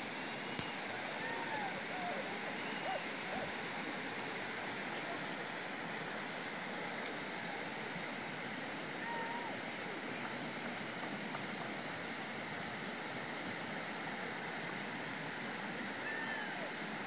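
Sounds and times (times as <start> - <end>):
rushing outdoor background noise: 0.0 - 17.0.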